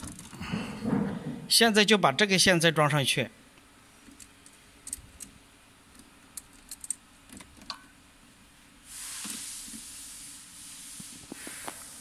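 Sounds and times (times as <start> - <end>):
steady hiss: 8.6 - 12.0.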